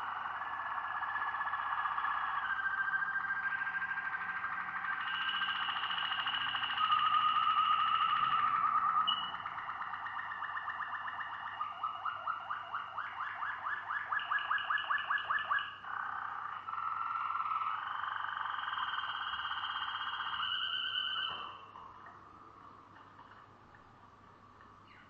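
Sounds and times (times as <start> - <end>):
canary singing: 0.1 - 12.1, 15.2 - 21.9.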